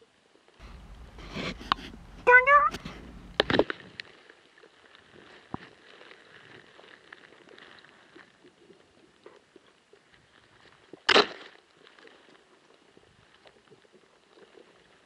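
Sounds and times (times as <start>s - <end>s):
underwater camera crackle and hiss: 0.6s - 4.0s.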